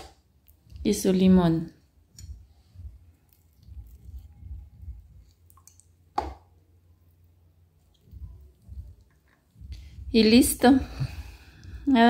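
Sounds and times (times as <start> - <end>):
lime squishing by hand: 2.1 - 10.0.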